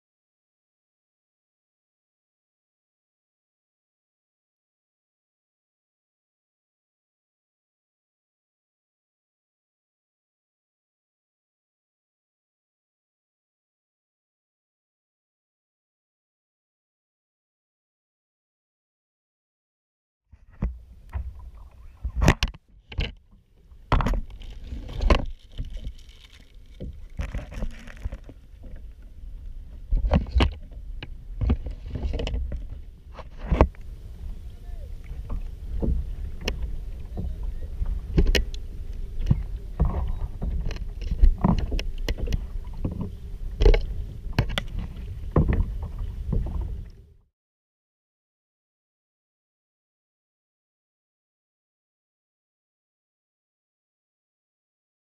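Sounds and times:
wind rumble on microphone: 0:20.4 - 0:47.2
water splashing against kayak hull: 0:20.5 - 0:47.1.

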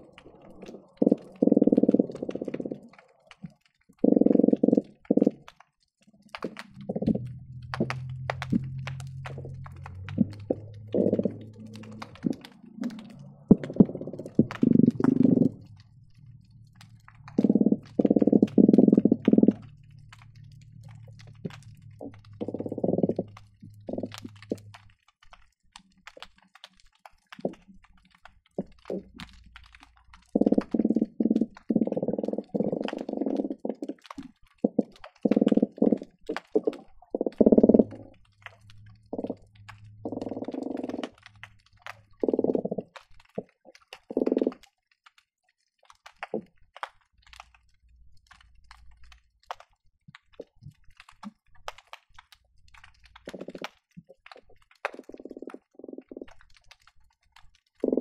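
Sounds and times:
faint clicks: 0:00.0 - 0:58.0
fish knocking pulses underwater: 0:06.3 - 0:24.9, 0:28.5 - 0:44.6, 0:52.8 - 0:56.6
steady low hum: 0:06.7 - 0:24.8.

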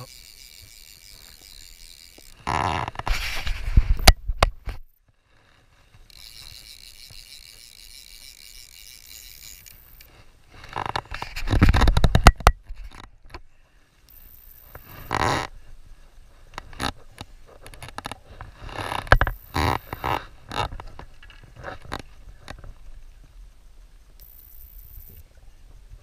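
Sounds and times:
handling noise scraping and clicking: 0:00.0 - 0:13.5, 0:16.4 - 0:22.8.

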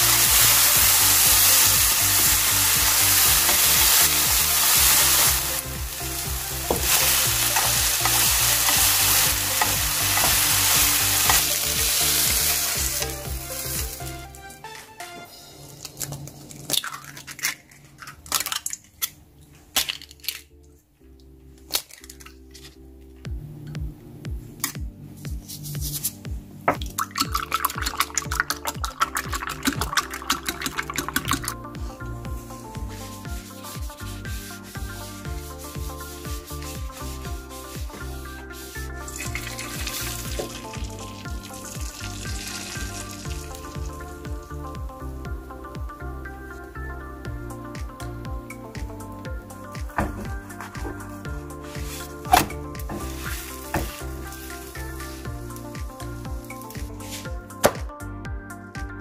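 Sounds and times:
egg sizzling in a hot pan: 0:00.0 - 0:14.2, 0:39.1 - 0:44.1, 0:53.2 - 0:55.2
background music with steady beat: 0:00.0 - 0:16.4, 0:19.2 - 0:59.0
eggshells cracking: 0:15.8 - 0:20.5, 0:21.7 - 0:22.4.

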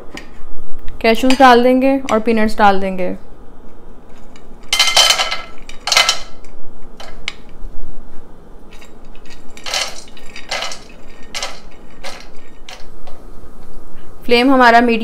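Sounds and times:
nuts clattering into pan: 0:04.7 - 0:06.4, 0:08.8 - 0:12.9.

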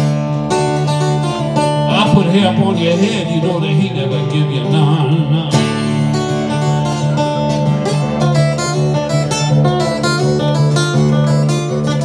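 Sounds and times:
acoustic guitar blues picking: 0:00.0 - 0:12.0.

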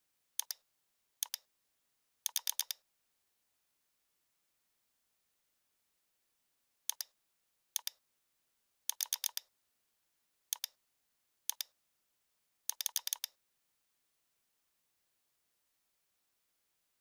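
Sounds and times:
computer mouse clicking: 0:00.4 - 0:00.6, 0:01.2 - 0:01.5, 0:02.3 - 0:02.8, 0:06.9 - 0:07.2, 0:07.8 - 0:08.0, 0:08.9 - 0:09.5, 0:10.5 - 0:10.8, 0:11.5 - 0:11.8, 0:12.7 - 0:13.4.

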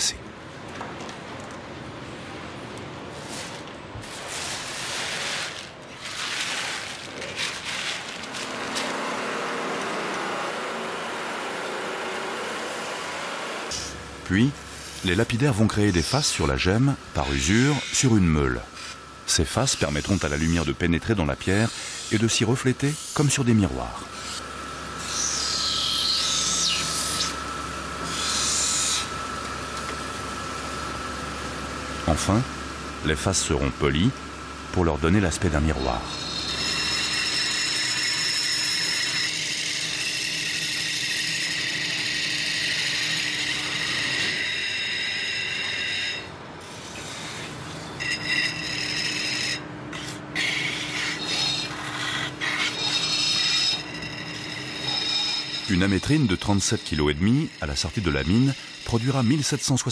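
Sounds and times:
mechanical whir: 0:05.5 - 0:59.9
stone grinding on wheel: 0:36.0 - 0:59.9.

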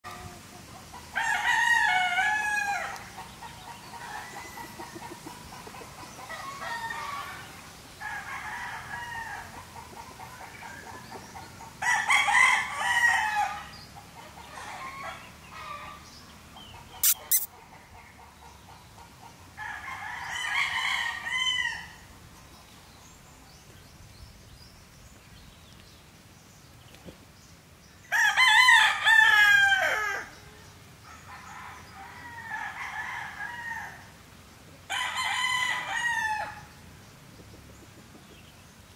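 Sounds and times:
roosters crowing: 0:00.1 - 0:10.9, 0:11.8 - 0:16.0, 0:17.0 - 0:17.5, 0:19.6 - 0:22.0, 0:28.1 - 0:30.5, 0:31.1 - 0:34.1, 0:34.9 - 0:36.7
chickens clucking: 0:02.8 - 0:07.4, 0:16.6 - 0:19.6, 0:37.3 - 0:38.6.

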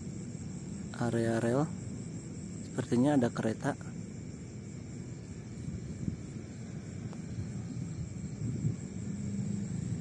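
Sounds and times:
wind buffeting the microphone: 0:04.0 - 0:10.0.

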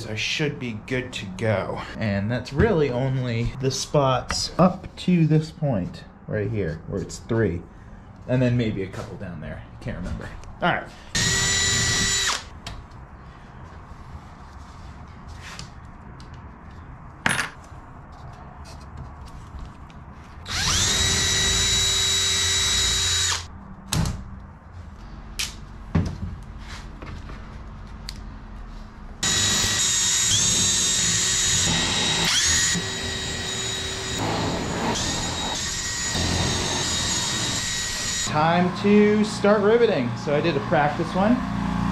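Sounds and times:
power drill whining: 0:11.2 - 0:12.5, 0:20.5 - 0:23.5, 0:29.2 - 0:38.3.

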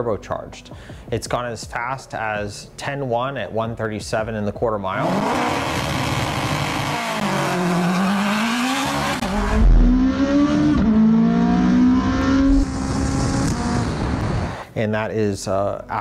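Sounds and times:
car engine and exhaust at full throttle: 0:05.0 - 0:14.6.

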